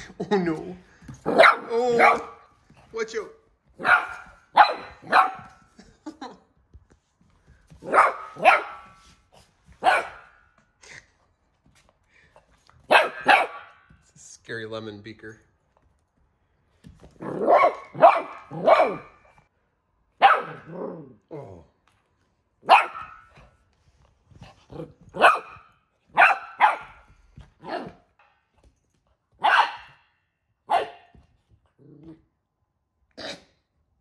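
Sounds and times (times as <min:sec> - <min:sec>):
puppy barking: 0:01.3 - 0:02.4, 0:03.8 - 0:05.6, 0:07.8 - 0:09.0, 0:09.8 - 0:10.4, 0:12.9 - 0:13.8, 0:17.2 - 0:19.2, 0:20.2 - 0:21.0, 0:22.6 - 0:23.4, 0:25.1 - 0:27.0, 0:29.4 - 0:30.0, 0:30.6 - 0:31.1.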